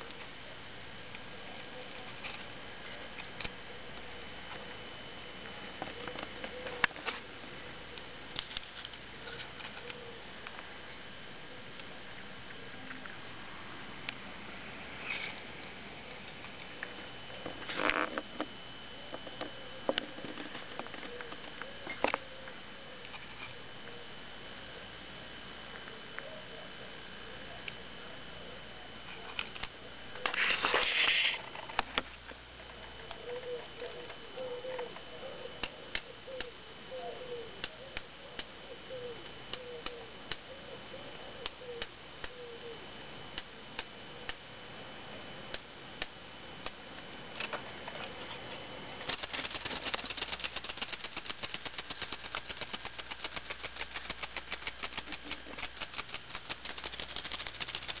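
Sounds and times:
clockwork toy clicks and rasp: 49.1s - 58.0s
spring motor ticking rattle: 49.1s - 58.0s.

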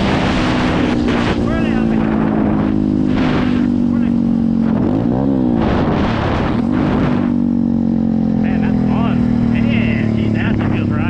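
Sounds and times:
wind rushing over microphone: 0.0s - 7.9s
motorbike engine running: 0.0s - 11.0s.

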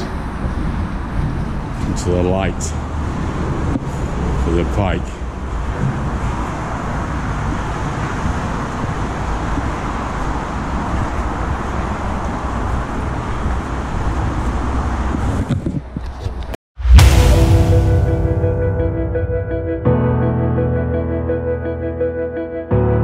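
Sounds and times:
road traffic rumble: 0.0s - 16.5s.

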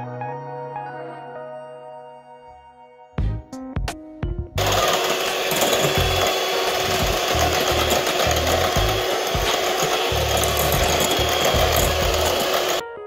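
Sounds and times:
electric hand mixer running: 4.6s - 12.8s.

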